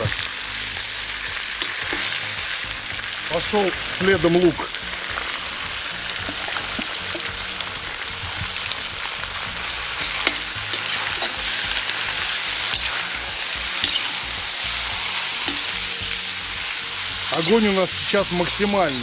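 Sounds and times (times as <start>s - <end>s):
meat and onion sizzling in oil: 0.0s - 19.0s
metal spatula scraping pot: 4.3s - 19.0s.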